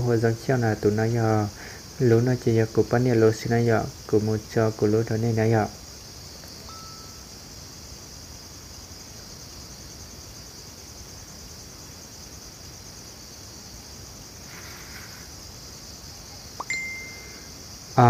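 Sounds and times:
insects chirring: 0:00.0 - 0:18.0
short tone: 0:16.6 - 0:17.5.

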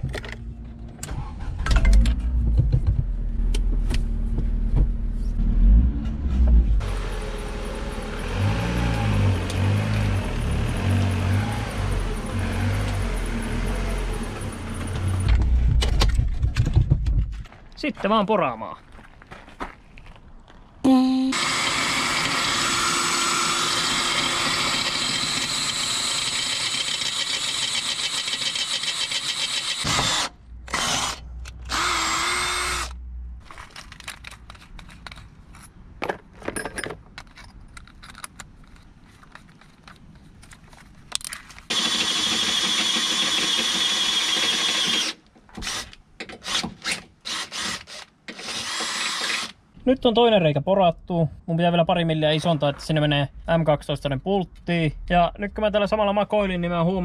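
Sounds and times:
cordless drill boring into steel: 0:21.3 - 0:33.0, 0:41.7 - 0:45.8, 0:47.2 - 0:49.6.

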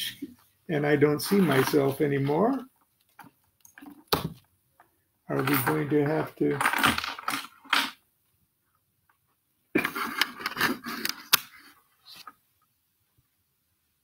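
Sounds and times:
handling clatter and scraping: 0:05.3 - 0:08.0, 0:09.8 - 0:12.4.

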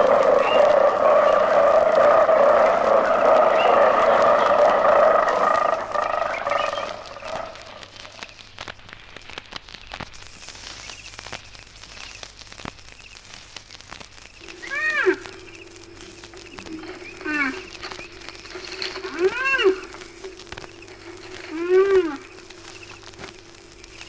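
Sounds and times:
animal call rising and falling: 0:00.0 - 0:07.7, 0:14.4 - 0:20.4
chorus of animal calls: 0:00.0 - 0:08.2, 0:14.4 - 0:24.0
quiet scattered clicks: 0:00.0 - 0:24.0.

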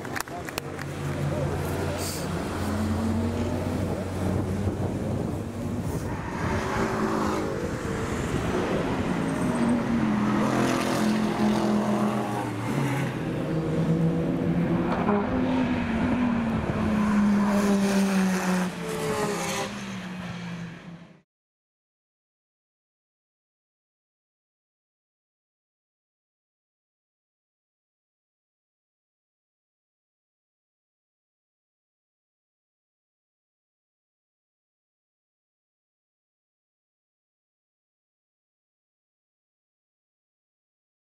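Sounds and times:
race car engines revving: 0:00.0 - 0:21.2.

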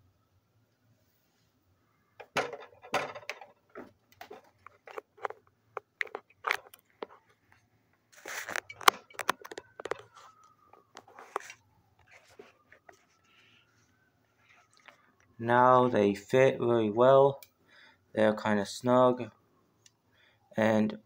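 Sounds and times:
headphone handling clicks and rustles: 0:03.3 - 0:13.1.

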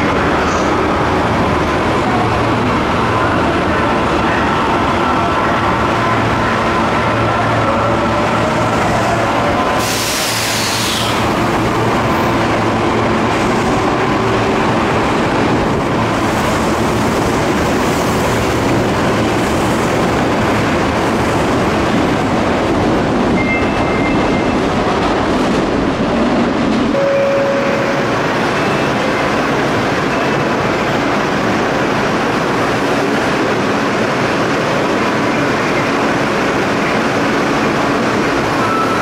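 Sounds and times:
subway train wheels rumbling: 0:00.0 - 0:39.0
brief tones: 0:23.4 - 0:24.5, 0:27.0 - 0:28.1, 0:38.6 - 0:39.0.

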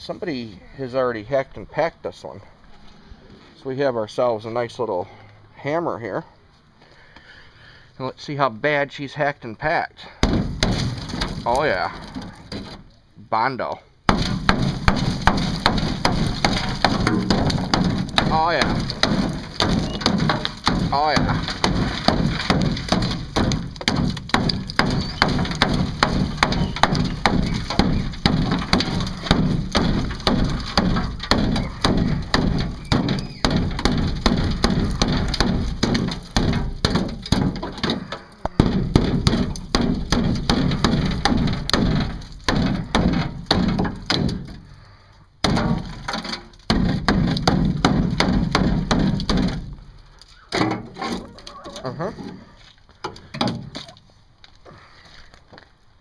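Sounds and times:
filler and metal cracking: 0:10.2 - 0:13.0, 0:14.1 - 0:54.0
hammer beating on metal: 0:14.1 - 0:37.5.

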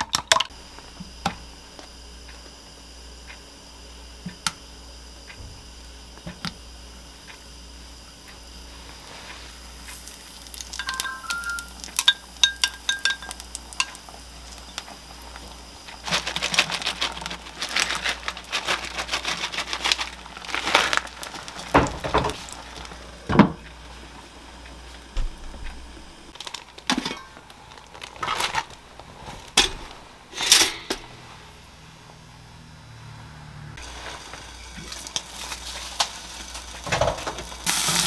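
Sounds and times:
plastic packaging crinkling: 0:09.8 - 0:12.2, 0:15.3 - 0:23.0, 0:26.4 - 0:29.6, 0:33.8 - 0:38.0.

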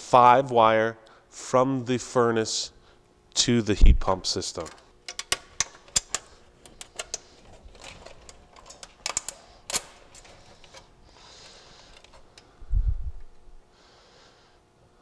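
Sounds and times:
wires clicking against metal: 0:04.5 - 0:10.9, 0:11.7 - 0:12.5
wires rustling: 0:04.5 - 0:13.5.

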